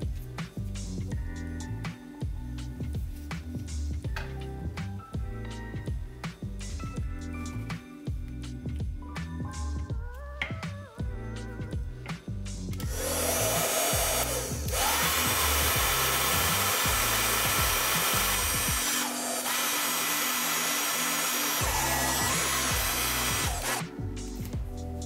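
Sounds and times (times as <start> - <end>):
heat gun whirring: 12.8 - 24.0.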